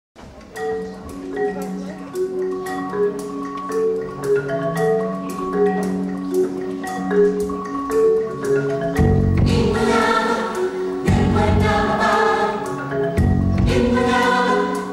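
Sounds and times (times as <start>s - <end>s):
mallet percussion melody: 0.3s - 14.9s
percussion beat: 0.4s - 14.9s.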